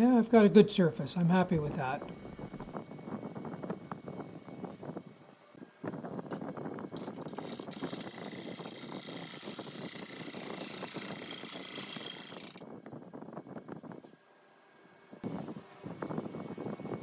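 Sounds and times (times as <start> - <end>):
wood lathe gouge cutting: 7.0 - 12.6.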